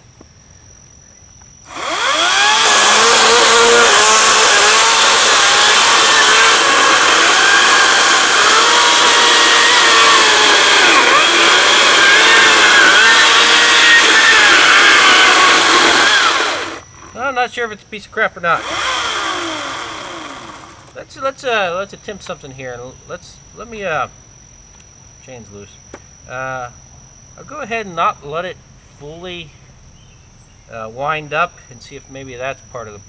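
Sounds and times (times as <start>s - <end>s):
chainsaw cutting log: 1.7s - 17.2s, 18.5s - 21.0s.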